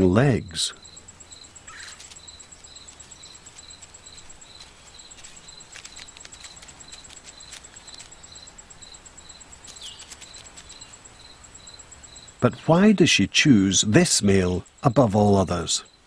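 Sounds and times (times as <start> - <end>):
insect chirping: 0.0 - 16.0
faint ticks and clicks: 0.7 - 12.4.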